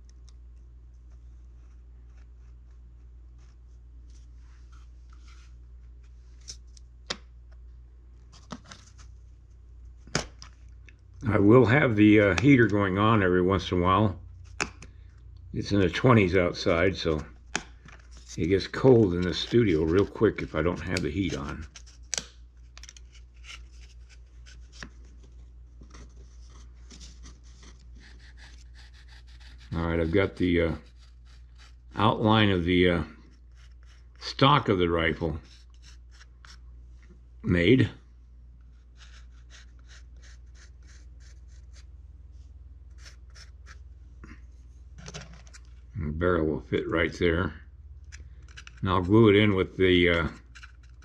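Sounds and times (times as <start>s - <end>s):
steady low hum: 0.0s - 51.0s
knife scratching wood: 27.1s - 32.1s, 33.3s - 34.2s, 35.4s - 36.6s, 38.7s - 41.9s, 42.9s - 43.9s, 50.1s - 51.0s.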